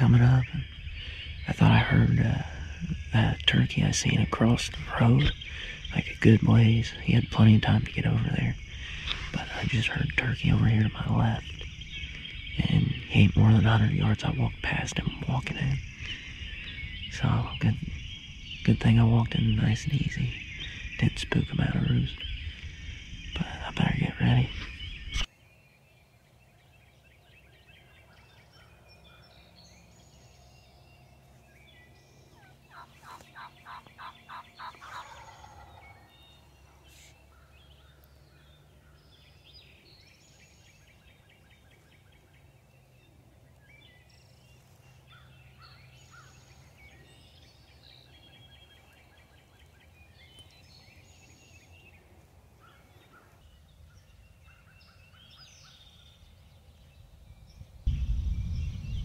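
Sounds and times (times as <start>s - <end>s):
small birds chirping: 0.0s - 59.0s
turkey gobbling: 32.4s - 36.1s.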